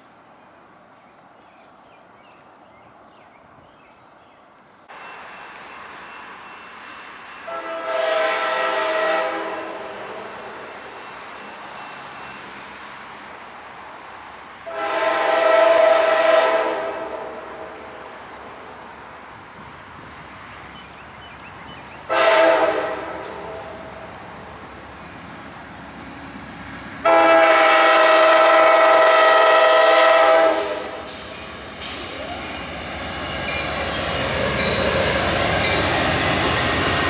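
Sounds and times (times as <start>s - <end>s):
locomotive air horn blasts: 7.4s - 10.6s, 14.6s - 17.9s, 22.1s - 24.0s, 27.0s - 32.3s.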